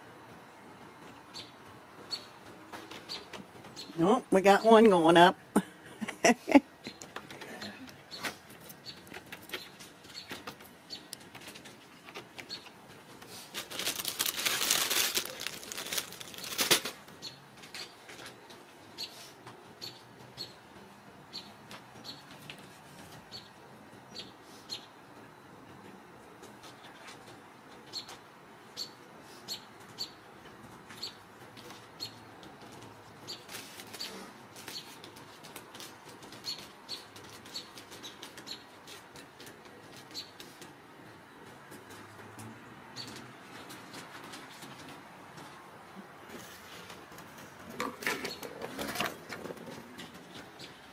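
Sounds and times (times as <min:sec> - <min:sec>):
small bird chirping: 0:01.3 - 0:02.4
loud rustling: 0:13.2 - 0:17.1.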